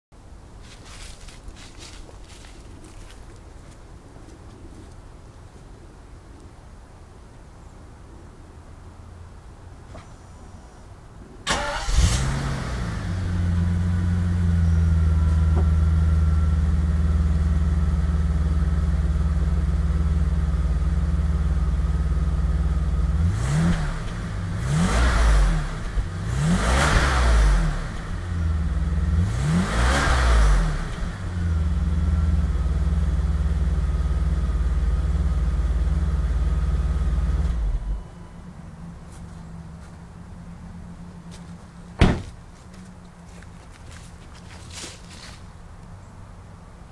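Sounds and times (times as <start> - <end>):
car engine starting: 11.4 - 41.1
car engine revving: 11.5 - 17.2, 23.0 - 32.5.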